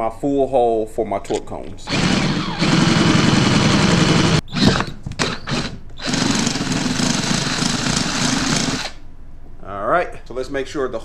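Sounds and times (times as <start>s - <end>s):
electric drill boring through metal: 1.9s - 9.0s.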